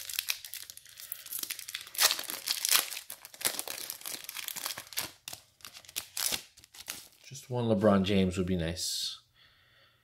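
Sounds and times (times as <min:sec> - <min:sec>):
plastic wrapper crinkling and tearing: 0:00.0 - 0:07.3.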